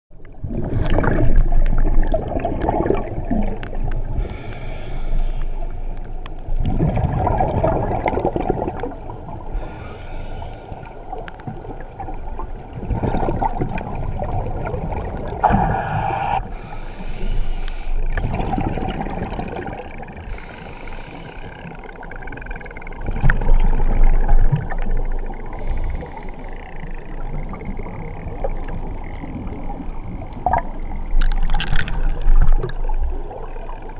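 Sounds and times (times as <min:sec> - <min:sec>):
exhaled bubbles rumbling: 0:00.1 - 0:04.4, 0:05.6 - 0:09.7, 0:11.1 - 0:16.6, 0:18.0 - 0:20.5, 0:21.6 - 0:33.9
regulator inhale hiss: 0:04.1 - 0:06.1, 0:09.5 - 0:11.2, 0:15.4 - 0:18.1, 0:20.2 - 0:21.9, 0:25.4 - 0:26.9.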